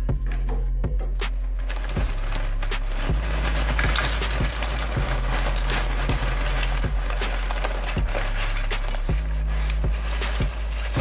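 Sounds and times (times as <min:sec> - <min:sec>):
music with steady beat: 0:00.0 - 0:11.0
plastic bag rustling: 0:00.0 - 0:11.0
chips pouring onto plate: 0:01.6 - 0:11.0.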